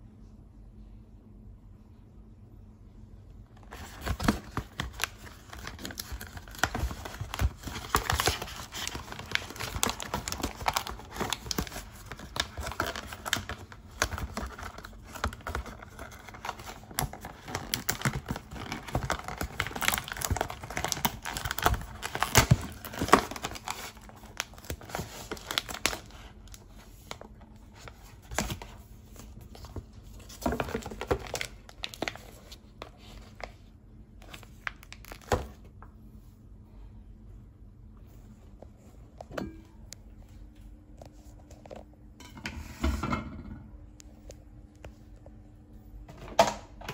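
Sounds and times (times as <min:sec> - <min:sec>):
plastic wrap crinkling: 0:03.6 - 0:35.8.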